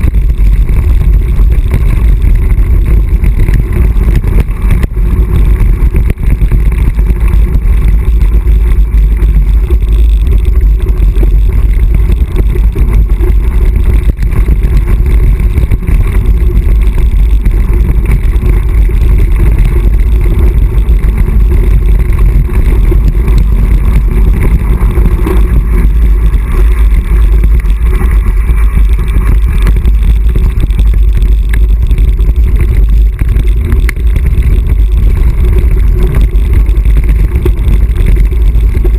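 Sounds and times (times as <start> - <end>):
bike rattling over stones: 0.0 - 38.9
wind buffeting microphone: 0.0 - 38.9.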